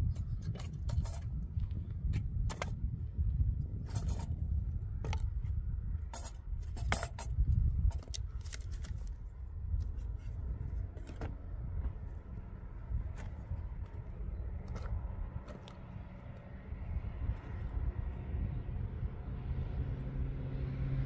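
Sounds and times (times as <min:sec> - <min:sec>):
steady low rumble: 0:00.0 - 0:21.0
hard objects clicking and knocking: 0:06.1 - 0:09.1.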